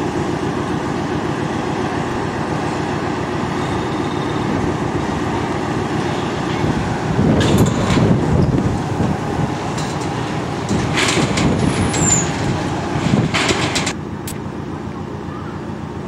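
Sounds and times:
diesel locomotive engine running: 0.0 - 16.0
wheels squealing on rails: 1.4 - 8.8, 9.4 - 13.9
metallic clanks: 7.4 - 8.2, 9.6 - 14.0.

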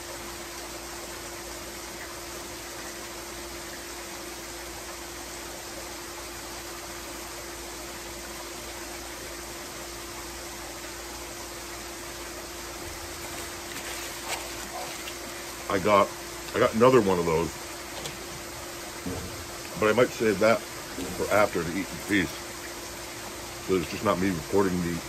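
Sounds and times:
faint steady hum: 0.0 - 25.0
waterfall rushing: 12.8 - 25.0.

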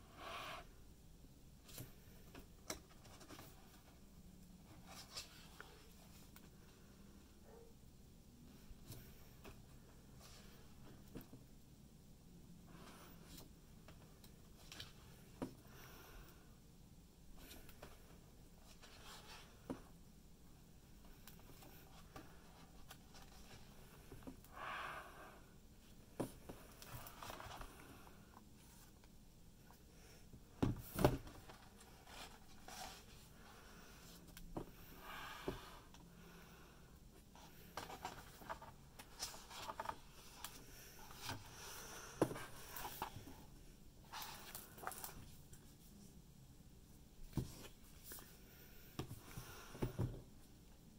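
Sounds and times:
book pages turning: 37.7 - 43.4.

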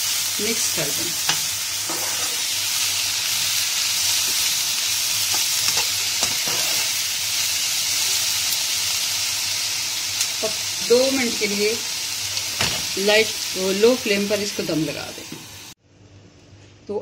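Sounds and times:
vegetables sizzling in a wok: 0.0 - 15.8
metal spoon scraping a pan: 1.3 - 2.6, 5.3 - 7.0.

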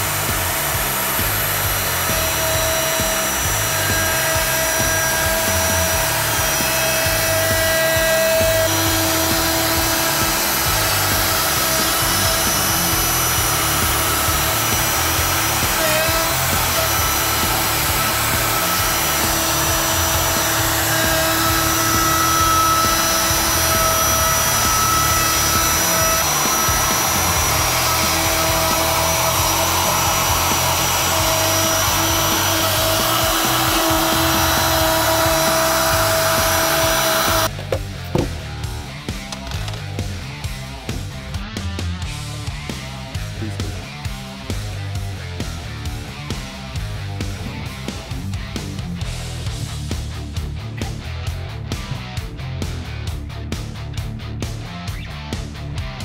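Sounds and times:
dust extractor drone: 0.0 - 39.4
router cutting wood: 0.0 - 40.0.

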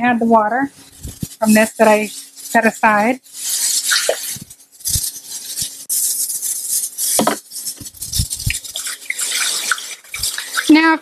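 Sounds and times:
water pouring into bottles: 0.9 - 11.0
plastic bottles knocking: 7.1 - 8.6.

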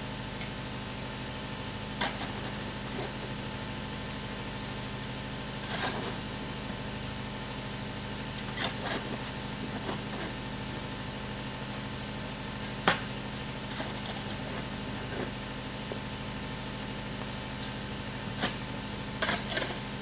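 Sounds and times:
low mechanical hum: 0.0 - 20.0.

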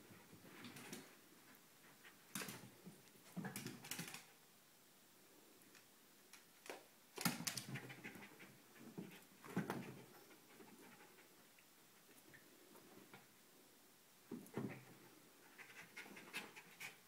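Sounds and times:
small dog panting: 15.5 - 17.0.

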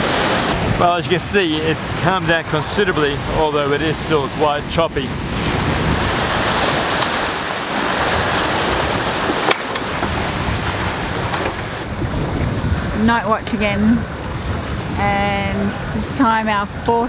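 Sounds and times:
waves breaking along hull: 0.0 - 17.0
wind blowing over microphone: 0.0 - 17.0.

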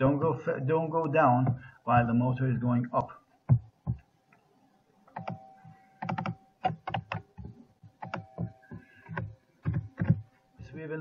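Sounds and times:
faint steady tone: 3.0 - 11.0
keyboard key clicks: 6.0 - 10.2.

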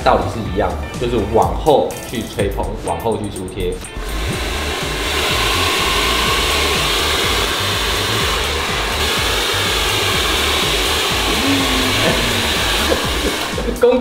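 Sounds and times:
hair dryer blowing air: 4.0 - 14.0.

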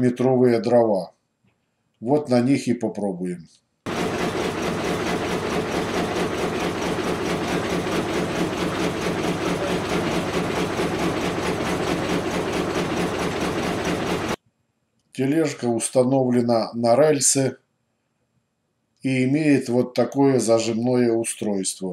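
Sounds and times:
machine hum: 3.9 - 14.4
sawmill rhythmic mechanical clatter: 3.9 - 14.4.

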